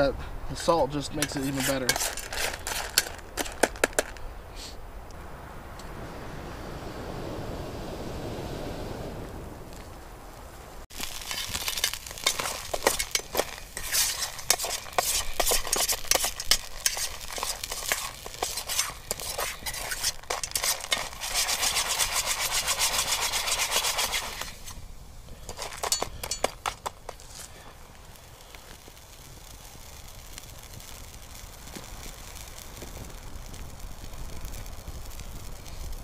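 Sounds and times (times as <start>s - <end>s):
spoon scraping nuts in skillet: 0.6s - 4.2s, 11.0s - 24.8s, 25.4s - 27.6s
water sizzling: 1.1s - 4.2s, 10.8s - 27.4s.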